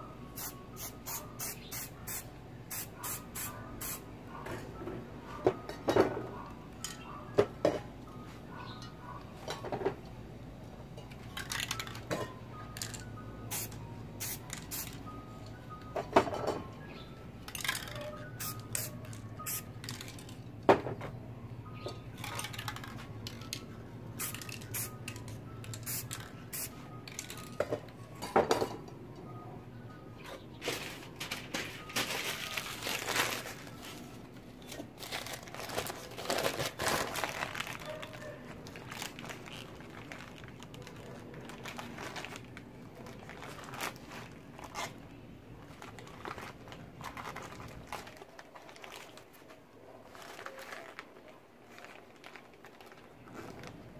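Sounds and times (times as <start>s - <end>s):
paper crinkling and rustling: 30.6s - 53.9s.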